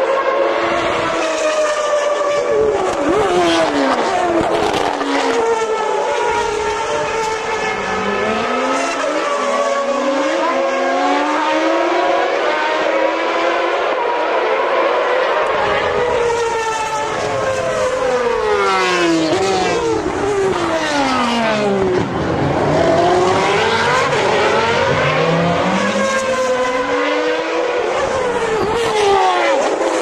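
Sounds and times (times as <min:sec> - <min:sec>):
racing car engines passing: 0:00.0 - 0:30.0.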